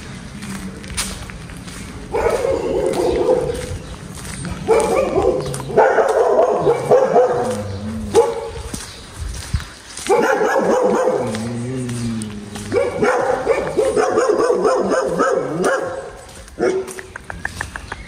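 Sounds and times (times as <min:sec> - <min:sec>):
dog barking: 0:02.1 - 0:03.7, 0:04.6 - 0:08.7, 0:10.0 - 0:11.4, 0:12.6 - 0:17.0.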